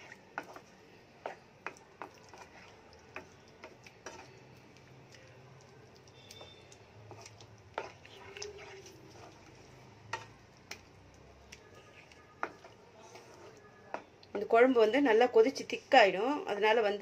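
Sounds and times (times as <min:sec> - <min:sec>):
spatula stirring in a pan: 0:00.0 - 0:14.5
spatula tapping a pan: 0:12.4 - 0:12.7.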